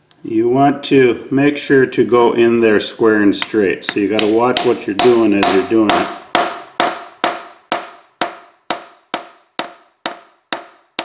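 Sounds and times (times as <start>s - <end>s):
hammer striking metal driver: 3.4s - 11.0s.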